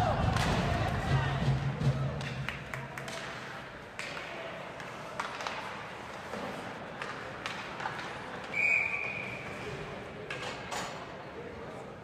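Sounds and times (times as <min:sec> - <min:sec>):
steady rink hum: 0:00.0 - 0:12.0
hockey sticks and puck knocking: 0:02.2 - 0:09.6.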